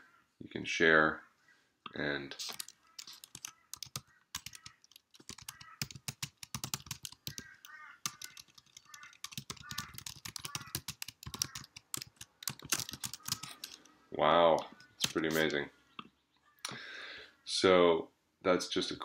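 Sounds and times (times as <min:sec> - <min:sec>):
keyboard key clicks: 0:02.4 - 0:13.8.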